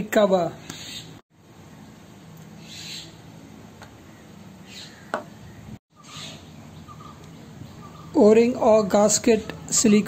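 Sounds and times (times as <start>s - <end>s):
faint bird calls: 2.6s - 3.2s, 4.0s - 8.2s.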